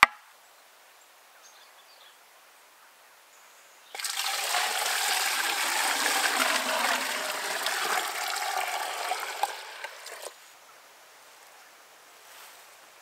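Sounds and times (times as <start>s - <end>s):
water pouring: 4.0s - 10.4s.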